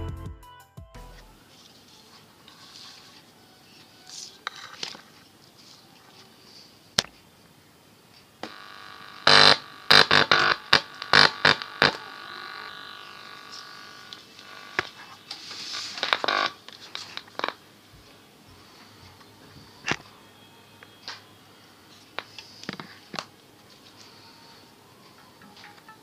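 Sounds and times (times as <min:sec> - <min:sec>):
buzzing hum: 0:08.4 - 0:22.2
loud pops and crackles: 0:09.2 - 0:12.0, 0:16.0 - 0:17.6.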